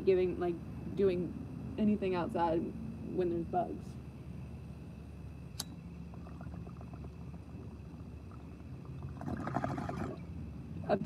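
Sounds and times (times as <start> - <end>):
sharp click: 5.6 - 5.8
water bubbling in a bong: 6.1 - 10.3.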